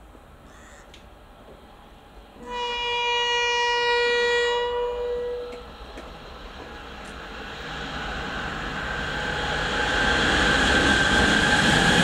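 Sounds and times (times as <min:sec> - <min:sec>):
train running noise: 0:00.0 - 0:12.0
train horn blast: 0:02.4 - 0:05.7.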